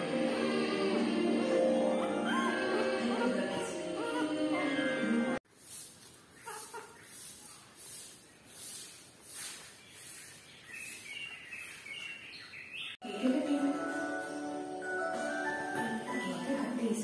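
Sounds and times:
background music: 0.0s - 5.4s, 13.0s - 17.0s.

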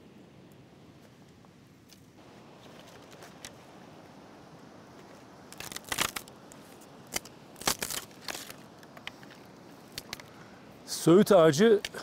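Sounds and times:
dry branches snapping: 5.0s - 10.4s.

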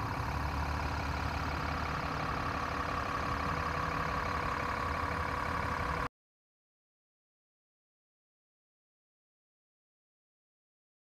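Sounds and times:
motor idling hum: 0.0s - 6.1s.

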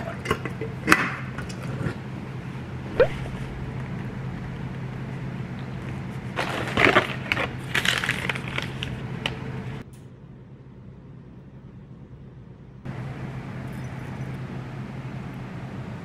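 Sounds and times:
crackly packaging rustling: 5.9s - 9.4s.

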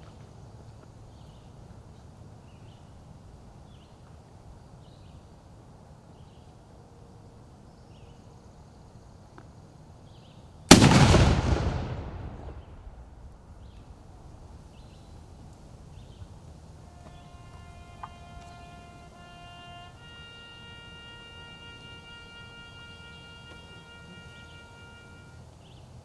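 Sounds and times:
cannon blast: 10.7s - 13.3s.

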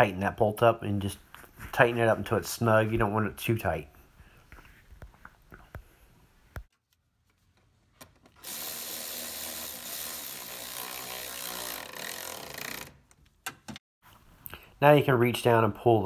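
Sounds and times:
cordless ratchet running: 8.4s - 13.0s.

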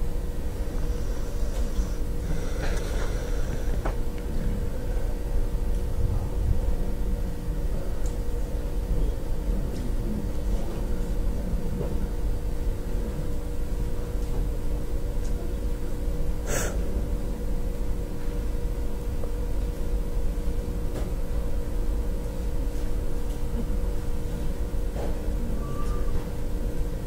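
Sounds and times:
faint constant hum: 0.0s - 27.0s
low rumble: 5.7s - 7.3s.

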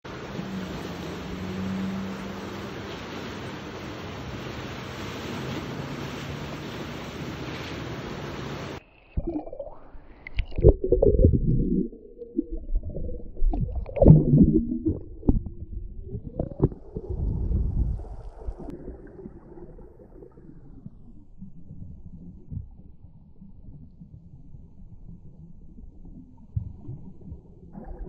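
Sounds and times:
river water rushing: 0.1s - 8.8s
low underwater rumbling: 9.1s - 28.0s
underwater gurgling and bubbling: 9.1s - 28.0s
underwater knocks: 10.4s - 17.8s.

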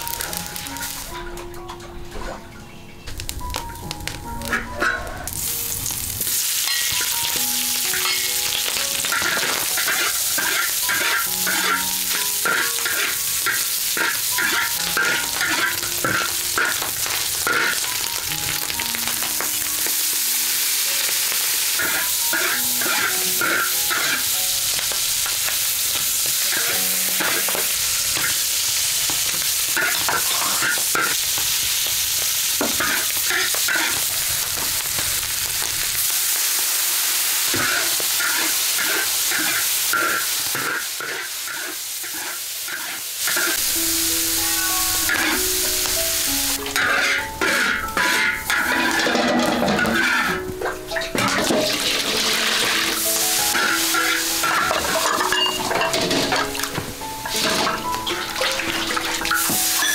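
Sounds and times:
meat sizzling in a wok: 0.0s - 1.1s, 3.2s - 59.9s
metal spatula scraping a pan: 7.9s - 18.0s, 21.7s - 24.8s, 25.4s - 28.6s, 29.7s - 31.2s, 32.6s - 34.1s, 37.5s - 43.6s, 46.5s - 56.6s, 57.2s - 59.9s.

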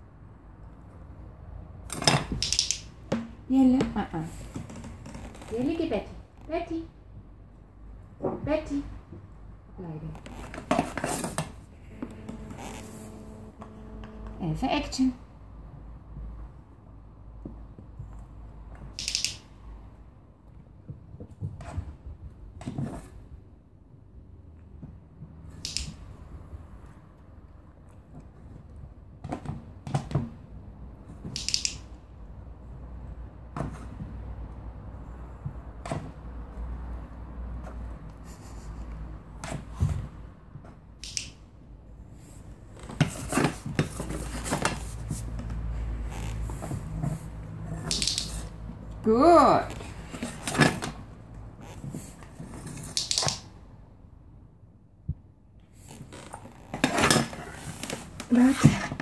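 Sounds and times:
sharp clicks: 2.4s - 3.0s, 18.9s - 19.5s, 25.6s - 26.1s, 31.3s - 31.9s, 41.0s - 41.4s.

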